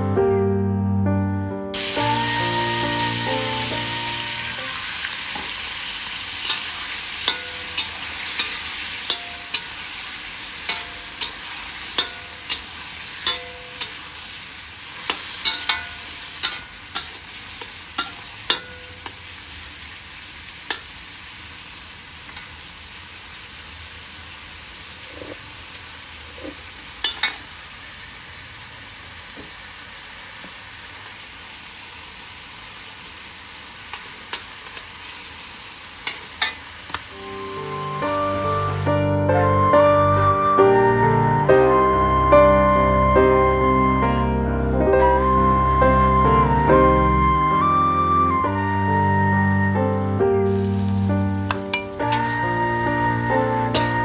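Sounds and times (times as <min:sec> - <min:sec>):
food sizzling in a wok: 0:01.8 - 0:38.9, 0:50.1 - 0:54.0
metal spatula scraping wok: 0:06.4 - 0:14.2, 0:14.9 - 0:19.2, 0:51.5 - 0:52.4, 0:53.7 - 0:54.0.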